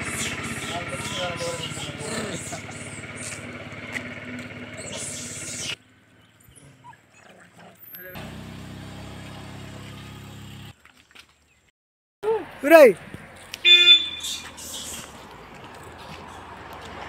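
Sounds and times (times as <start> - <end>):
small engine idling: 0.0 - 7.1, 7.9 - 10.8.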